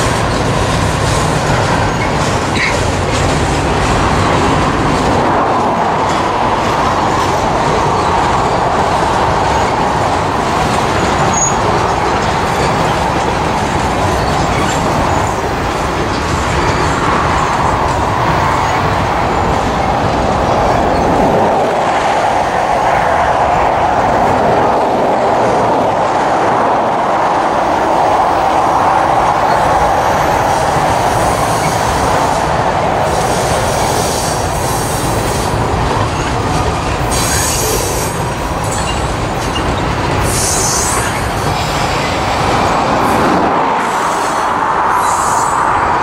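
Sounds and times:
train wheels rumbling and clattering: 0.0 - 46.0
wheel squeal: 1.8 - 2.9, 11.2 - 13.0, 37.1 - 41.6.

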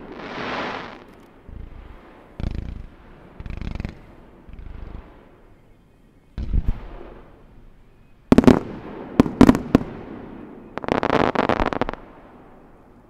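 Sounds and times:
fireworks booming and banging: 0.0 - 5.2, 8.3 - 12.0
fireworks crackling: 0.0 - 5.4, 8.3 - 12.5.

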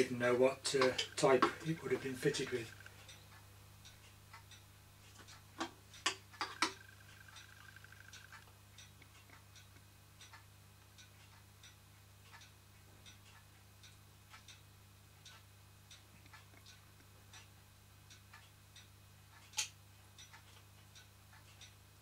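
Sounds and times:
soft ticking: 0.0 - 22.0
low hum: 6.5 - 9.1.

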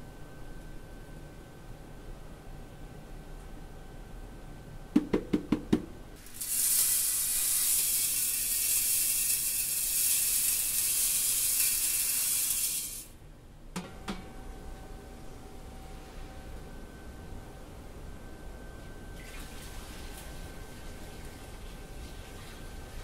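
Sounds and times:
knocks: 5.0 - 5.9
grit pouring with a hiss: 6.2 - 13.1.

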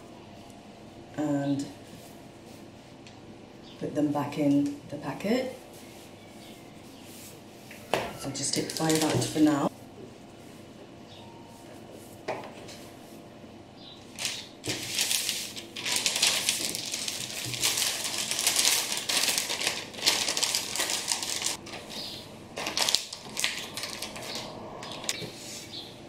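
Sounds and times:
plastic packet crinkling: 8.4 - 9.4, 14.1 - 25.2.

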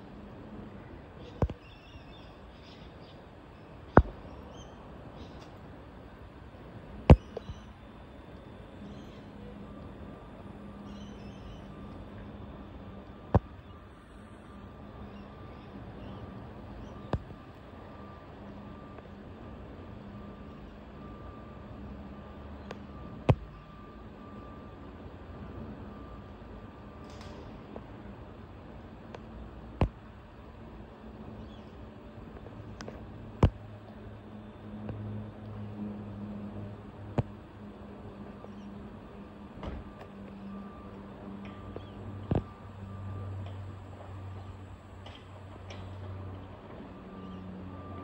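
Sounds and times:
faint hum: 0.0 - 48.0
outdoor background hiss: 0.0 - 48.0
faint high bird chirps: 1.2 - 5.5, 7.2 - 7.9, 8.5 - 9.6, 10.2 - 12.5, 13.5 - 17.1, 47.0 - 48.0.

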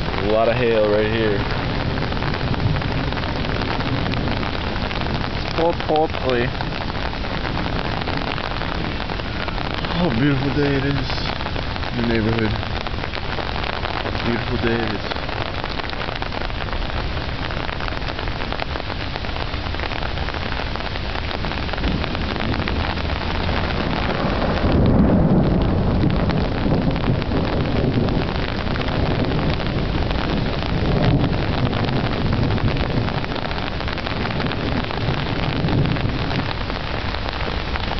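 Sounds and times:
rain on grass and leaves: 0.0 - 37.9
low rumble: 6.5 - 36.6.

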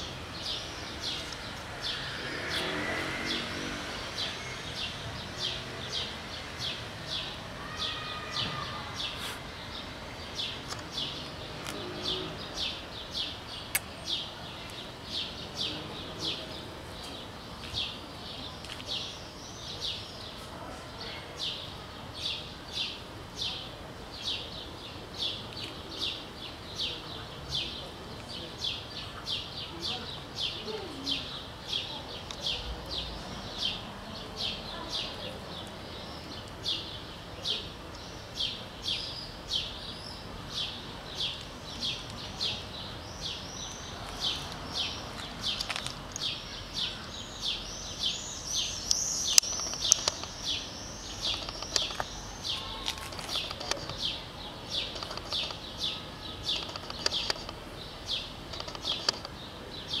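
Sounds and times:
small bird chirping: 28.7 - 60.0.

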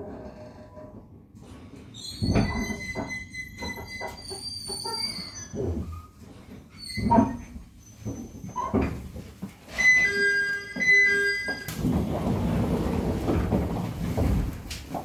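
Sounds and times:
two-note electronic door chime: 9.8 - 11.8.

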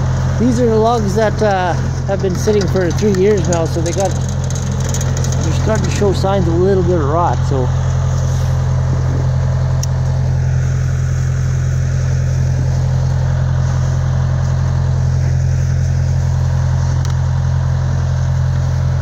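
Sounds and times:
sawmill engine humming: 0.0 - 19.0.

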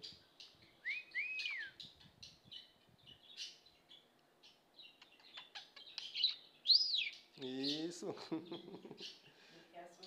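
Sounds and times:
rising and falling whistles: 0.9 - 1.8
budgerigar chirping: 4.8 - 7.2.

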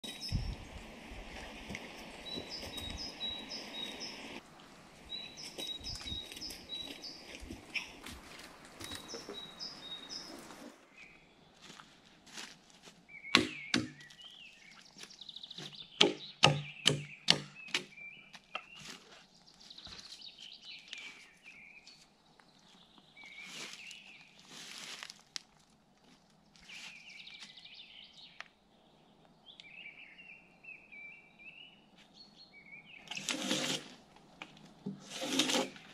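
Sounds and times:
birds singing: 0.0 - 0.9, 2.0 - 4.4, 5.0 - 11.6, 13.1 - 24.4, 26.6 - 33.2.

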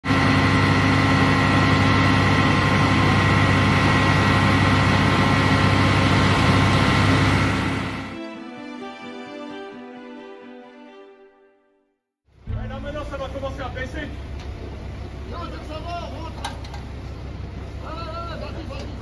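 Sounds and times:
engine driving water pump: 0.0 - 8.2
music: 8.2 - 13.2.

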